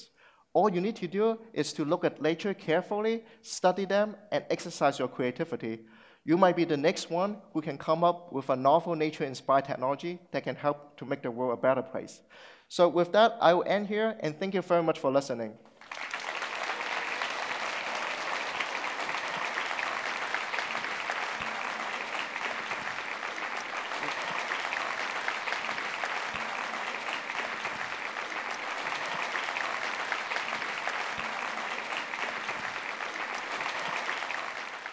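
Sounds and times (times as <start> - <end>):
audience applauding: 15.7 - 34.9.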